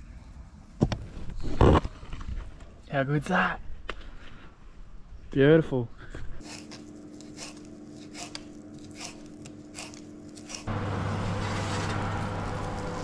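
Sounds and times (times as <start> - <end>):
oven running with rush: 9.7 - 13.0.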